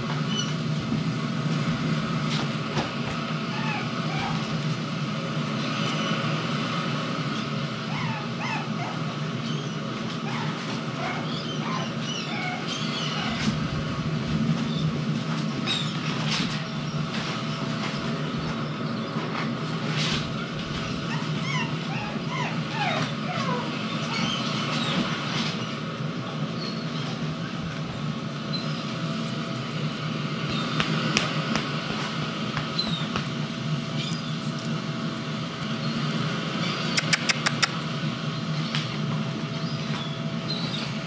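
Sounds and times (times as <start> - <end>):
steady low hum: 0.0 - 41.0
puppy whimpering: 3.5 - 4.6, 7.9 - 13.6, 20.8 - 25.1, 36.6 - 37.9.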